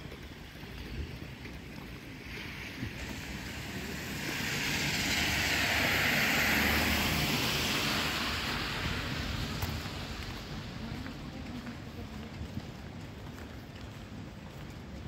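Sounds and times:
vehicle rumble: 0.0s - 15.0s
tyres hissing on wet asphalt: 1.4s - 12.1s.

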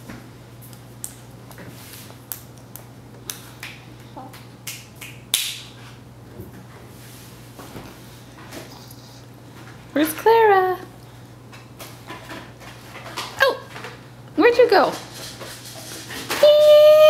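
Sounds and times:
baby clapping hands: 2.3s - 5.6s.

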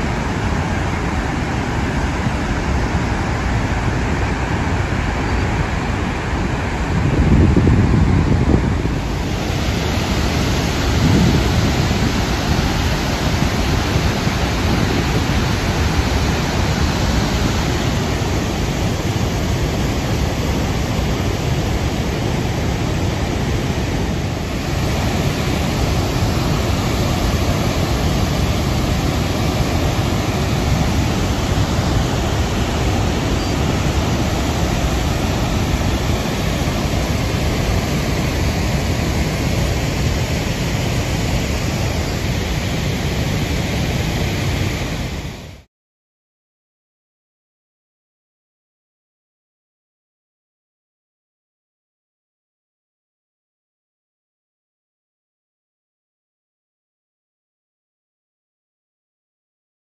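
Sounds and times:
waterfall rushing water: 0.0s - 45.7s.

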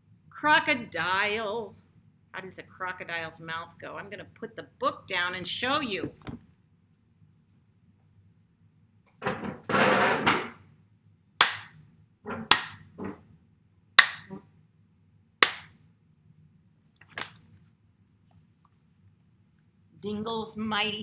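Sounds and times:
hands clapping: 11.4s - 11.7s, 12.5s - 12.8s, 14.0s - 14.3s, 15.4s - 15.7s.

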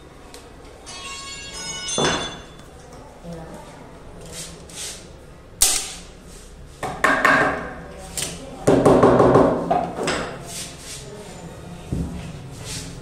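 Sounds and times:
staple gun snap: 5.6s - 6.0s
tools knocking: 6.8s - 7.7s.

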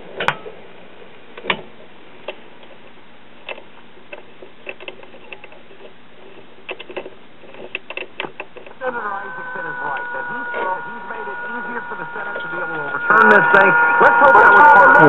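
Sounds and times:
radio clicks and crackles: 2.2s - 15.0s
low hum: 8.6s - 15.0s
radio static hiss: 8.6s - 15.0s.

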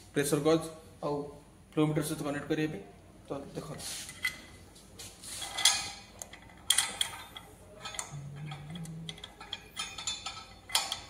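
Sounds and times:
metal clicking and scraping: 5.4s - 11.0s.

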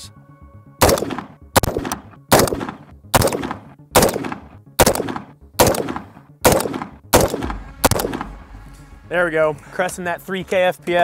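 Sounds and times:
rifle shots with echo: 0.8s - 8.4s.

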